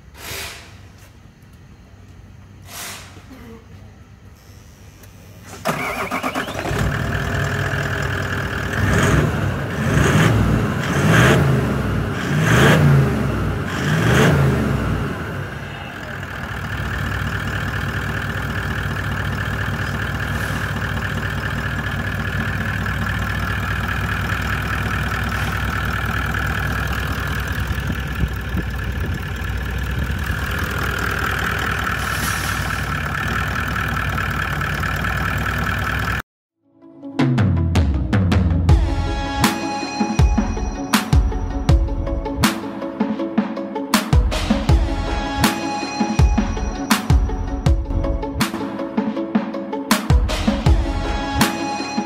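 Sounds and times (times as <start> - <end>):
diesel engine revving and idling: 5.0 - 36.2.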